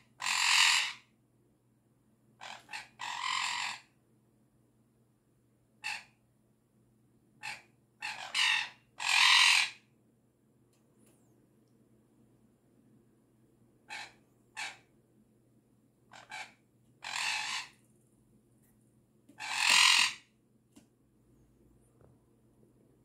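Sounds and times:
parrot harsh alarm cries: 0.0s - 1.1s, 2.4s - 3.9s, 5.8s - 6.2s, 7.4s - 9.9s, 13.9s - 14.9s, 16.1s - 17.8s, 19.4s - 20.3s.

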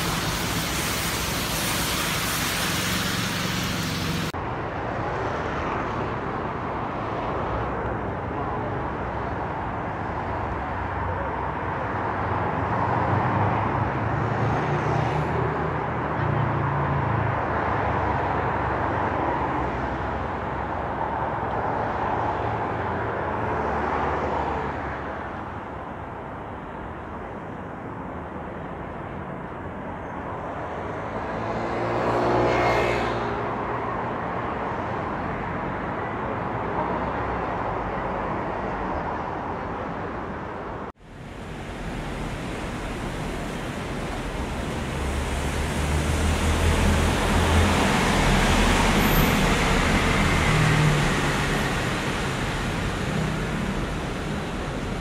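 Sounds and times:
rain-like hiss: 0.0s - 4.4s, 41.0s - 55.0s
cars driving past: 0.0s - 26.5s, 29.0s - 55.0s.

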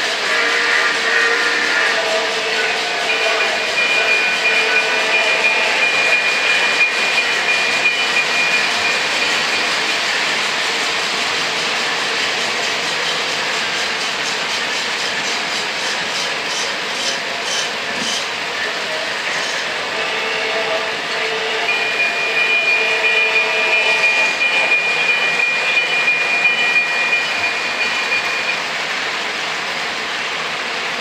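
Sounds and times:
train whistle: 0.0s - 9.7s, 16.5s - 28.6s
model steam locomotive chuffing: 0.0s - 31.0s.

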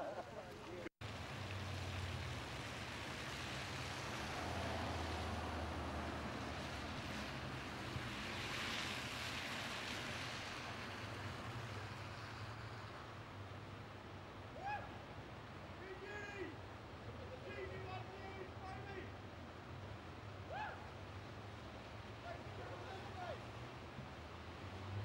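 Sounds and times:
tyres splashing through floodwater: 0.0s - 25.0s
low engine hum: 1.0s - 14.4s.

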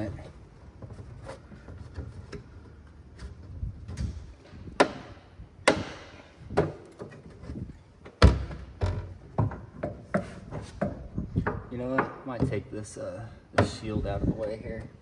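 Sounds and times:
metal clunks and thuds: 3.8s - 12.6s.

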